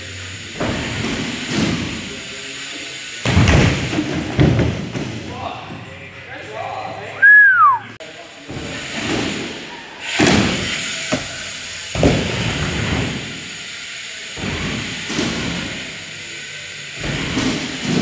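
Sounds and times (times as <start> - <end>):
bike tyres rolling on ramps: 0.0 - 18.0
bike wheels thudding on landing: 0.4 - 2.2, 3.2 - 5.9, 8.4 - 13.5, 14.4 - 16.0, 16.9 - 18.0.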